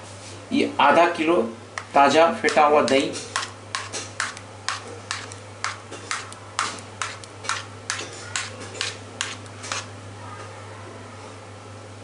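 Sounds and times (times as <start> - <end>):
steady low hum: 0.0 - 12.0
utensil tapping on bowl: 1.8 - 9.9.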